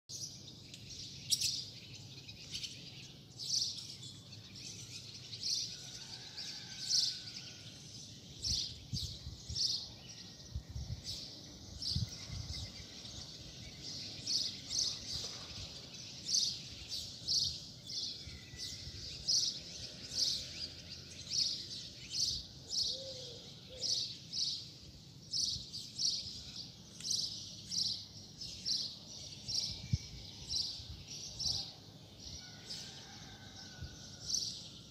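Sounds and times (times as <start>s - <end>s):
small bird chirping: 0.2s - 5.1s.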